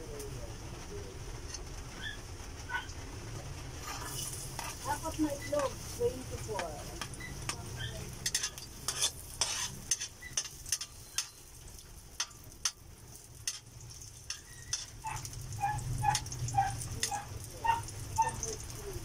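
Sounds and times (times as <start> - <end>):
garlic sizzling in hot oil: 1.1 - 19.0
metal spatula scraping pan: 3.8 - 11.6, 12.2 - 12.8, 13.4 - 17.3.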